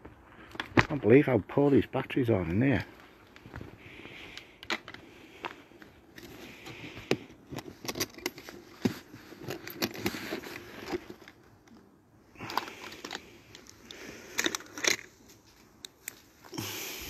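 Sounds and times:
handling rustling: 3.0 - 16.5.

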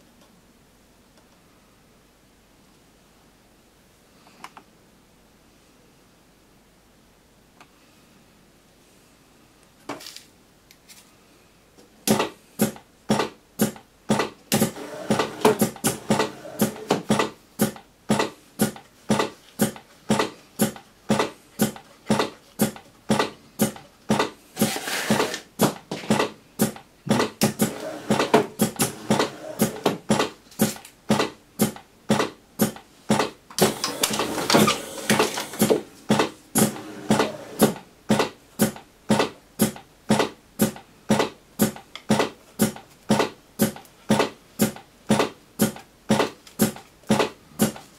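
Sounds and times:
machine mechanism clacking: 12.1 - 25.4, 26.1 - 47.9.

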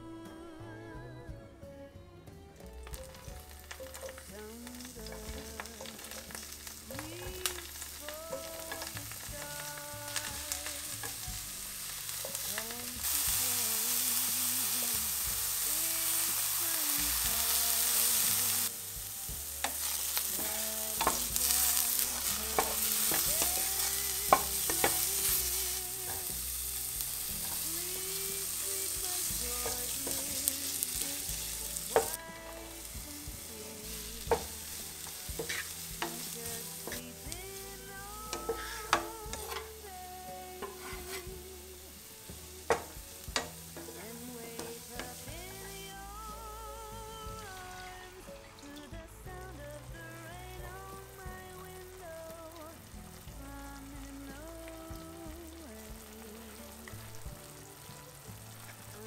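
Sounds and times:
mushrooms sizzling in a pan: 2.6 - 59.0
wooden spatula stirring and tapping: 2.8 - 13.4, 19.3 - 45.8.

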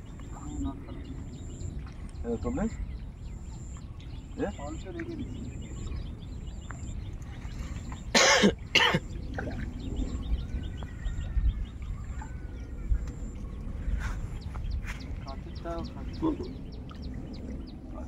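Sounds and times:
faint outdoor background: 0.0 - 18.0
person coughing: 8.2 - 9.0.

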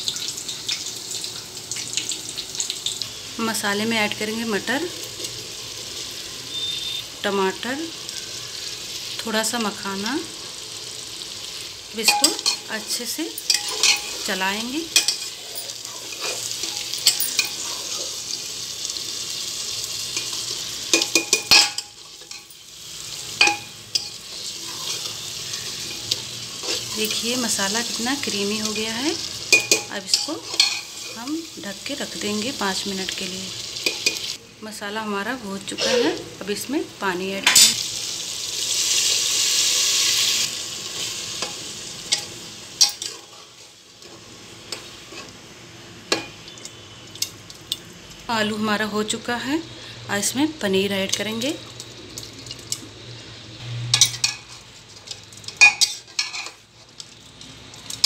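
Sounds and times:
food sizzling in a pot: 0.0 - 58.0
metal spatula scraping a pot: 23.4 - 27.2.

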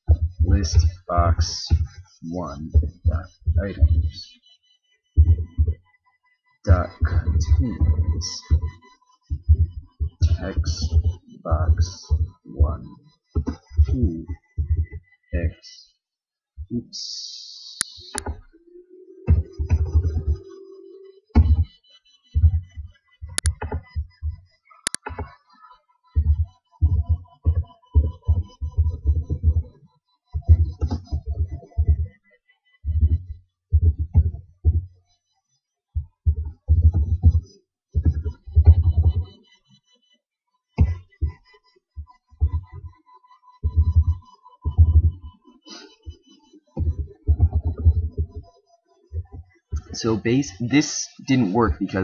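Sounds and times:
keyboard typing thuds: 5.2 - 5.8, 6.7 - 15.0, 21.3 - 21.8, 22.4 - 25.4, 26.2 - 32.2, 32.8 - 35.0, 36.0 - 39.3, 40.8 - 41.4, 43.6 - 45.9, 46.8 - 48.5
music with deep bass thumps: 6.7 - 15.0, 43.6 - 45.3, 46.8 - 48.5
keyboard key clicks: 24.8 - 25.3.

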